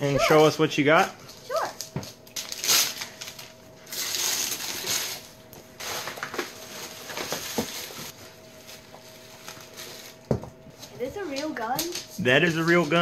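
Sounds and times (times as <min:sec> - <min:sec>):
wrapping paper tearing: 0:01.3 - 0:10.2
tissue paper crinkling: 0:02.3 - 0:10.3.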